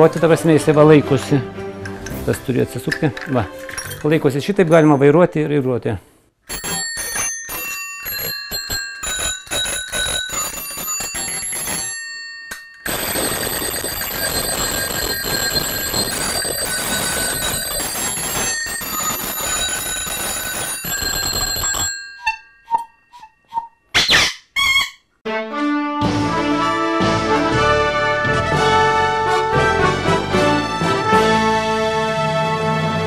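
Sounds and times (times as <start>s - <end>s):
bicycle bells ringing: 6.5s - 23.3s.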